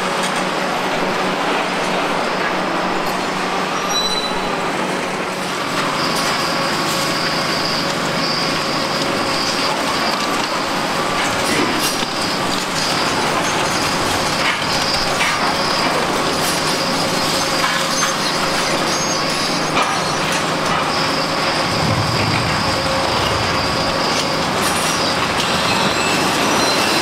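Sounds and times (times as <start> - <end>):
excavator diesel engine and hydraulics: 0.0 - 27.0
high-pitched whine: 20.0 - 26.9.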